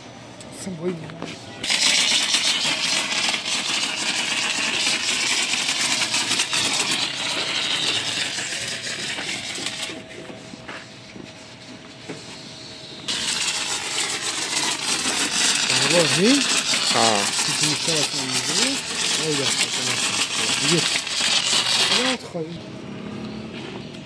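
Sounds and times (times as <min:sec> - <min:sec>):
pressure washer spray hissing: 0:01.6 - 0:10.0, 0:13.1 - 0:22.2.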